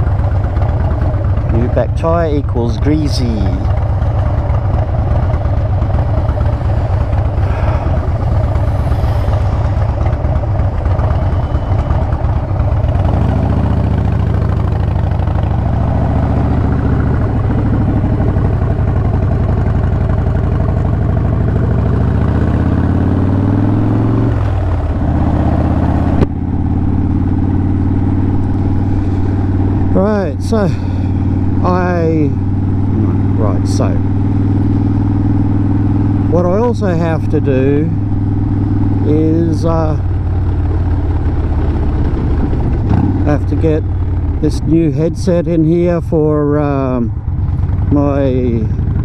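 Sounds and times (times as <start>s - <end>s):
motorcycle engine running: 0.0s - 49.0s.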